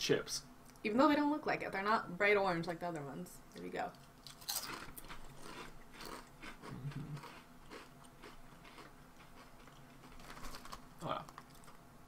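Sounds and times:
people crunching potato chips: 0:04.2 - 0:11.8.

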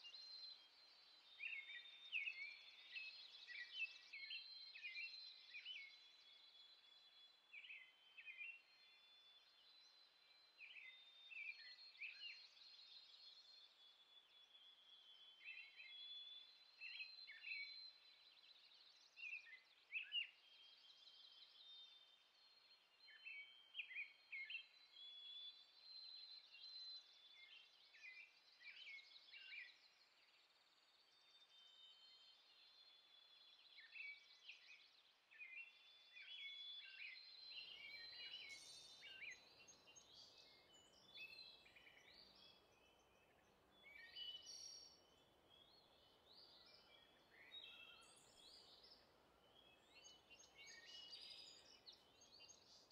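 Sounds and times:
birds chirping and trilling: 0:36.4 - 0:52.9.

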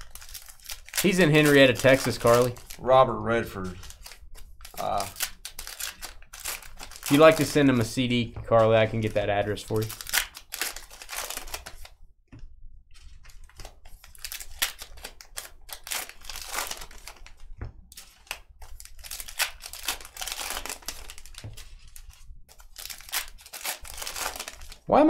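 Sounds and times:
cards being handled: 0:00.0 - 0:02.8, 0:03.6 - 0:12.0, 0:12.9 - 0:24.9
wrappers crinkling and tearing: 0:00.0 - 0:02.8, 0:03.6 - 0:12.0, 0:13.0 - 0:25.0.

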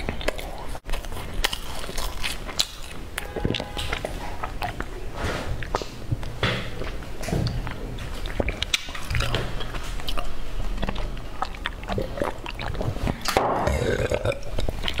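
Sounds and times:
person sipping and swallowing: 0:03.2 - 0:15.0
wet mouth clicks and smacks: 0:05.6 - 0:13.4.

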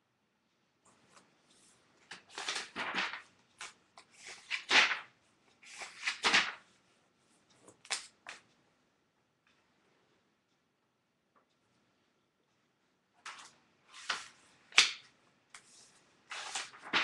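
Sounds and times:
rustling and handling noises: 0:00.8 - 0:08.6, 0:13.2 - 0:17.0.

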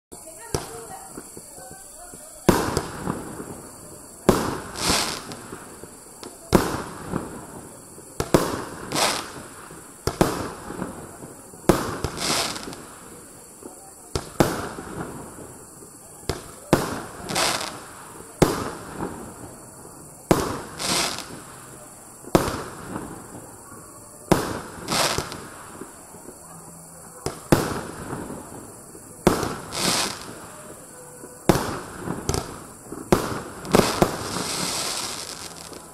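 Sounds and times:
firework shells bursting: 0:00.4 - 0:19.6, 0:24.3 - 0:26.2, 0:27.2 - 0:35.9
firework launch bangs: 0:02.4 - 0:23.5, 0:27.2 - 0:35.9.

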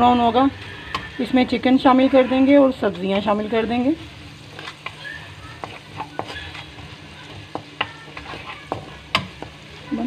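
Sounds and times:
paste sizzling in hot oil: 0:00.0 - 0:10.0
spatula stirring and scraping: 0:00.0 - 0:10.0
spatula knocking against pan: 0:05.6 - 0:09.6.

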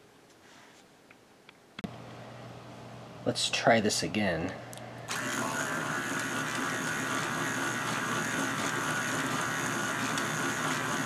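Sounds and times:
toy electric motor running: 0:05.1 - 0:11.0.

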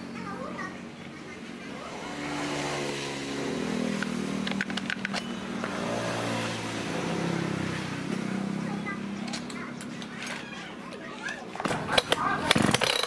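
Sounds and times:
plastic clicks: 0:04.0 - 0:05.3.

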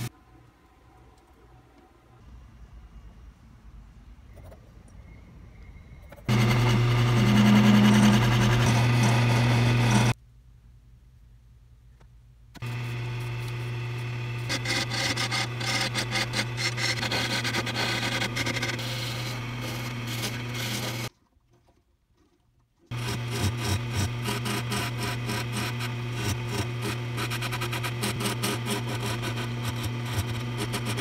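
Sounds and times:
turning tool scraping wood: 0:06.2 - 0:10.2, 0:12.6 - 0:31.0
electric power tool motor hum: 0:06.3 - 0:10.2, 0:12.6 - 0:21.1, 0:22.9 - 0:31.0
wood lathe spinning: 0:06.3 - 0:10.2, 0:12.6 - 0:21.1, 0:22.9 - 0:31.0.

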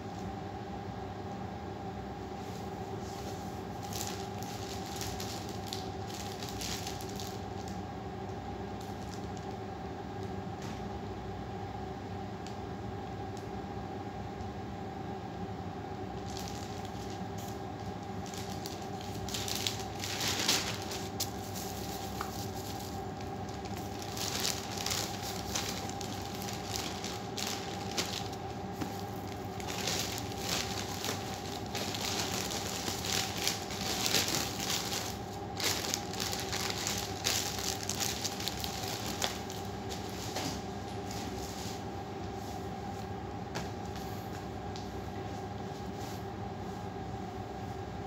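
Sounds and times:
background hum: 0:00.0 - 0:48.0
plastic wrap crinkling: 0:03.2 - 0:07.8, 0:08.8 - 0:09.6, 0:16.2 - 0:40.6.

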